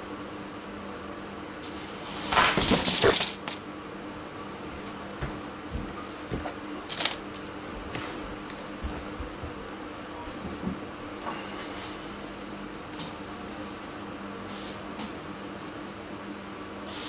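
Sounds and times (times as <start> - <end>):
toy trucks whirring: 2.3 - 3.6, 6.9 - 7.2.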